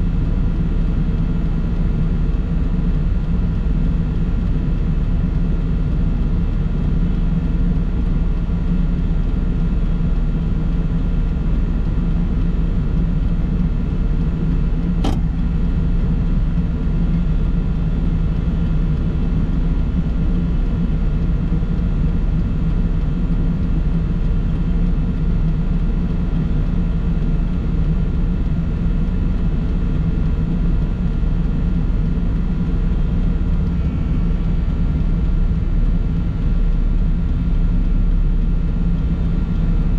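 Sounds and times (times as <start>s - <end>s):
vehicle driving on road: 13.9s - 22.9s
brief click: 15.0s - 15.4s.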